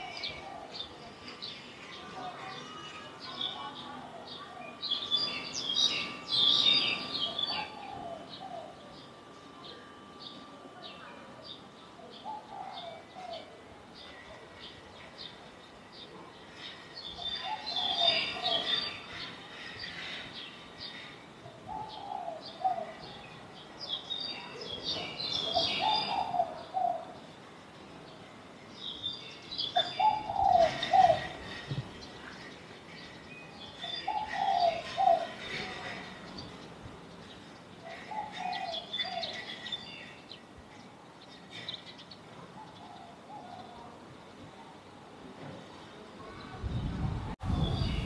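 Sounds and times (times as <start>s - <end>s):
background noise: 0.0s - 48.0s
pigeons cooing: 21.6s - 23.2s, 25.3s - 27.2s, 29.8s - 31.8s, 33.9s - 36.1s, 37.8s - 39.5s.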